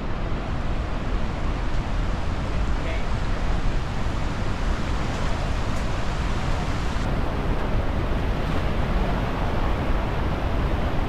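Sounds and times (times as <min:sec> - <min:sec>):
rushing water roar: 0:00.0 - 0:11.0.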